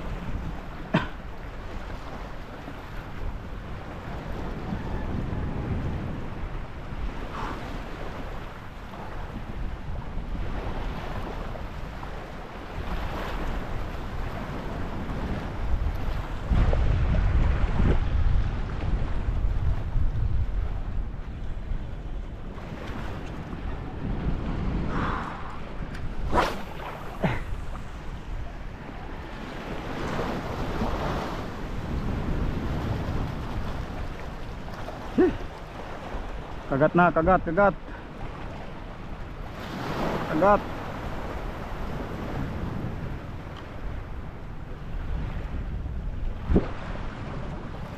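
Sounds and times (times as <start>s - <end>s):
wind buffeting microphone: 0.0s - 36.7s, 37.4s - 47.9s
small waves lapping: 22.2s - 45.3s.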